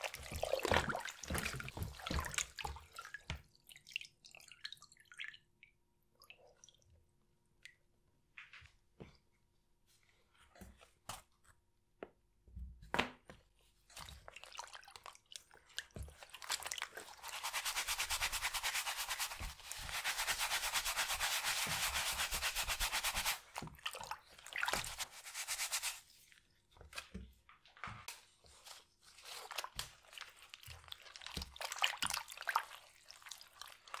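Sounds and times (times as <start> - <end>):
brush scrubbing a sneaker: 17.0 - 23.6, 24.6 - 26.1.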